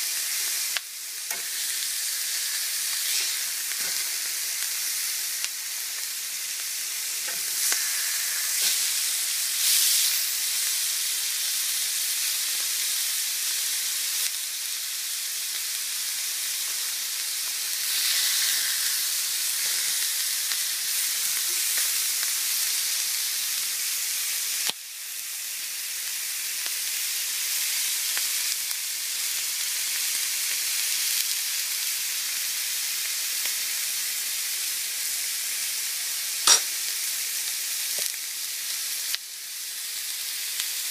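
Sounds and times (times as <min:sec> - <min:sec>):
meat sizzling in a grill pan: 0:00.0 - 0:40.9
sharp click: 0:36.5 - 0:36.7.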